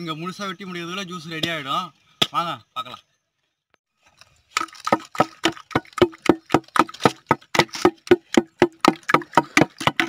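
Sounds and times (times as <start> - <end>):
wooden churner pounding fruit in pot: 4.6 - 10.0.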